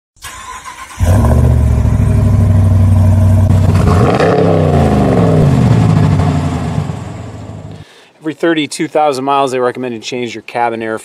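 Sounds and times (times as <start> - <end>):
truck engine running and revving: 1.0 - 7.8.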